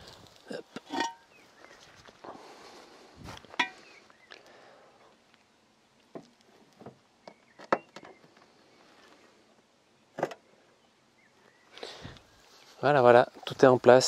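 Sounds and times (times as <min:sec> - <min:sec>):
concrete blocks knocking and scraping: 0:00.6 - 0:01.3.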